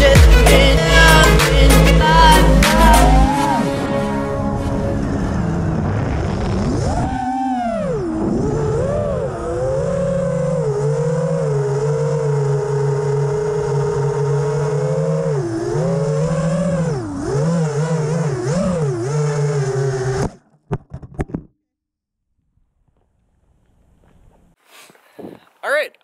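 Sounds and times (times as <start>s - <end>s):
drone motors whining: 0.0s - 20.4s.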